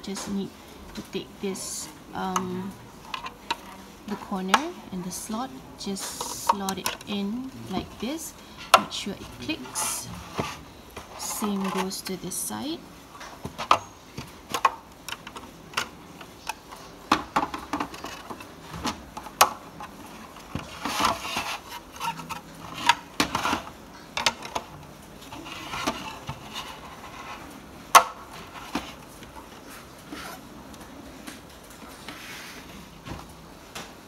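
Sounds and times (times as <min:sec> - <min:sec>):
plastic scraping rubs: 0:07.7 - 0:12.2, 0:13.2 - 0:27.6, 0:28.2 - 0:30.5
plastic panels clicking and knocking: 0:13.2 - 0:24.8.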